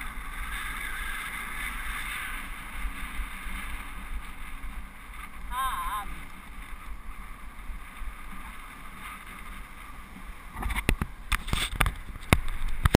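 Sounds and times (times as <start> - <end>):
riding wind noise: 0.0 - 13.0
knocks and scrapes on camera: 10.6 - 13.0.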